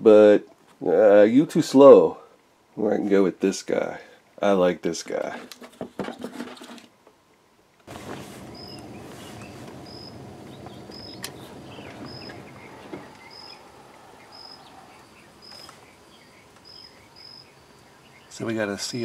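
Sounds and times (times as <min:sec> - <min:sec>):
low background noise: 0:00.0 - 0:19.0
cricket chirping: 0:08.5 - 0:18.4.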